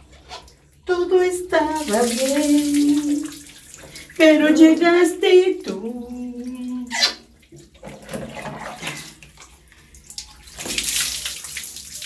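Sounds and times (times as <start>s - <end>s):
water splashing over dog: 1.8s - 3.4s, 10.4s - 12.0s.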